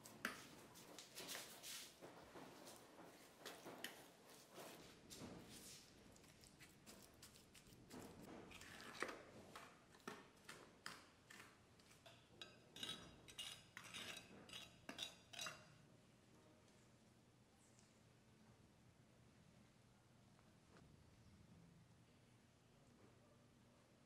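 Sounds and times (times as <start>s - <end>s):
hand tool scraping wet cement: 12.8s - 15.6s.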